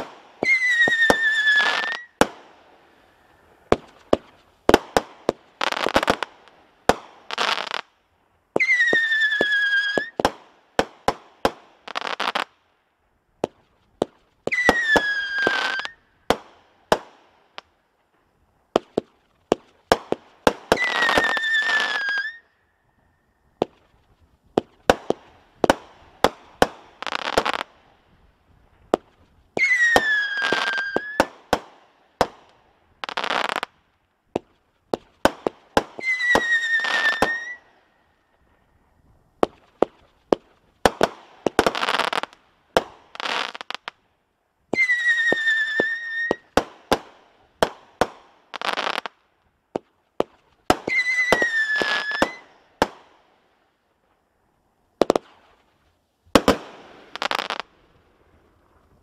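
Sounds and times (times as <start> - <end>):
firework whistles: 0.0 - 2.4, 8.6 - 10.2, 14.4 - 16.0, 20.5 - 22.7, 28.9 - 31.4, 35.8 - 38.2, 44.7 - 46.6, 50.7 - 52.6
firework bangs: 0.0 - 2.5, 3.6 - 7.8, 56.3 - 57.7
firework crackle: 0.0 - 12.6, 13.4 - 44.0, 44.7 - 54.2, 54.9 - 59.0.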